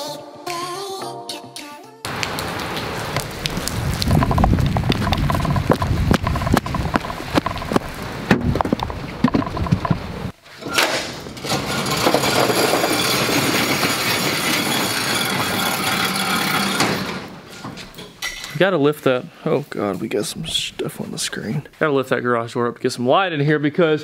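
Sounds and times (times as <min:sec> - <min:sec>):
footsteps on wet pavement: 0:02.1 - 0:10.3
rain: 0:02.1 - 0:10.3
metal roll-up door rattling: 0:09.2 - 0:18.6.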